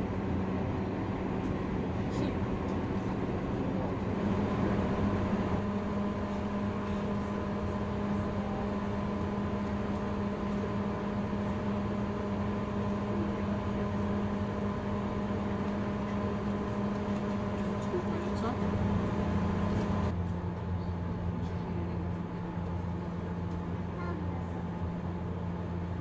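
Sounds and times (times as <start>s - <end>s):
constant low hum: 0.0s - 26.0s
train carriage rumble: 0.0s - 26.0s.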